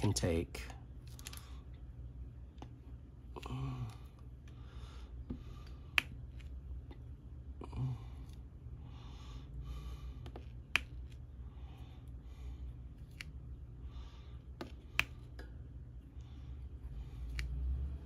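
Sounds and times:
low steady hum: 0.0 - 18.0
soft breaths: 3.3 - 6.1, 7.5 - 10.6, 11.2 - 18.0.

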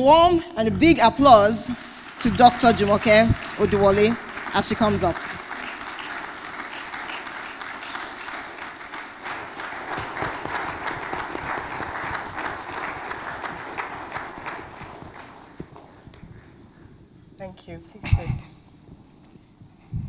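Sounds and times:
audience applauding: 0.8 - 16.6.

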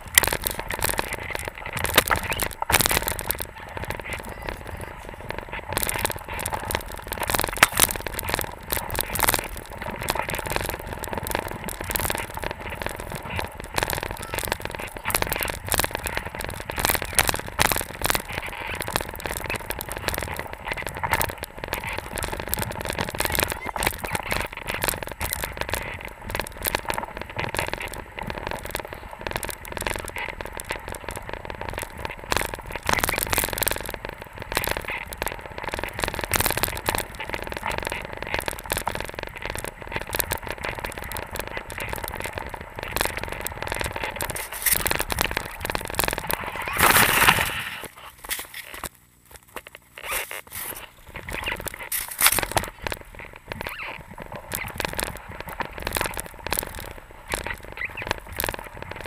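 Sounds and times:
skis scraping over snow: 0.0 - 48.9, 49.5 - 59.0.

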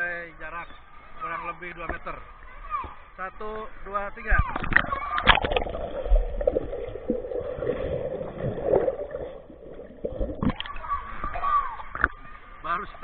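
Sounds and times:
water sloshing and splashing: 4.2 - 13.0
underwater bubbling knocks: 4.5 - 12.2.

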